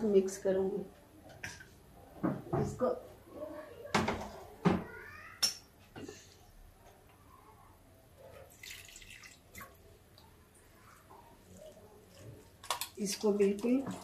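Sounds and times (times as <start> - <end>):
water pouring splash: 8.5 - 9.8
water trickling and dripping: 8.5 - 14.0.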